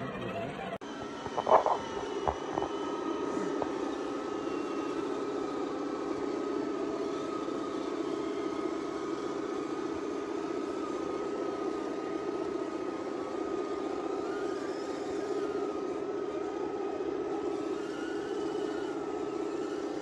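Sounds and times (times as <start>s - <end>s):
rc truck motors whining: 0.0s - 20.0s.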